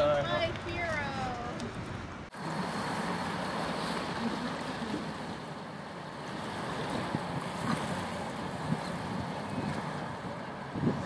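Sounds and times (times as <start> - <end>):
boat engine running: 0.0 - 11.0
water lapping around boat: 0.0 - 11.0
wind on microphone: 6.2 - 11.0.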